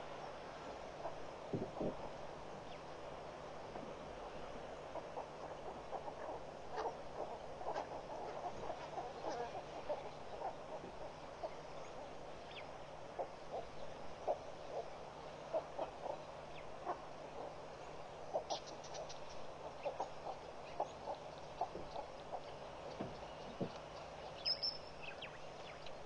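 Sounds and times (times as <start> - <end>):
birds clucking calls: 0.0 - 26.0
steady hiss: 0.0 - 26.0
high bird chirps: 24.4 - 25.4.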